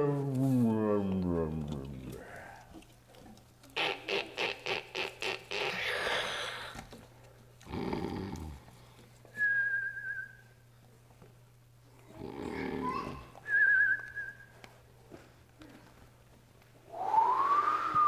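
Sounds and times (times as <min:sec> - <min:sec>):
held whistle: 0:09.4 - 0:10.4, 0:13.5 - 0:14.5, 0:16.9 - 0:18.0.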